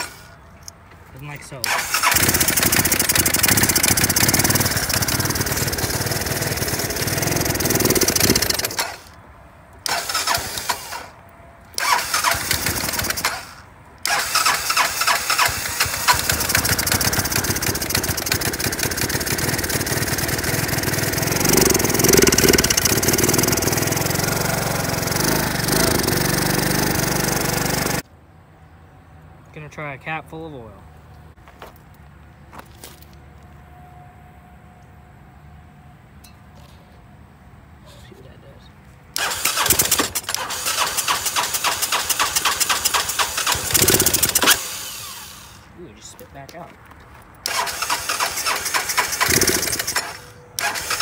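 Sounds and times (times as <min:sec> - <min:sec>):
scooter engine running roughly: 0:02.0 - 0:09.0, 0:11.8 - 0:13.4, 0:14.1 - 0:28.0, 0:39.5 - 0:44.6, 0:47.5 - 0:51.0.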